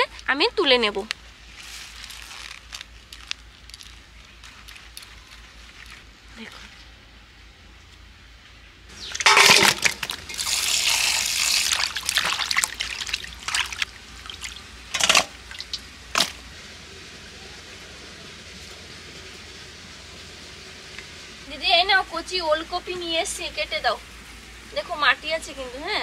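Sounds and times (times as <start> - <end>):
sharp water splashes: 8.9 - 16.4
water splashing in metal bowl: 9.0 - 16.4.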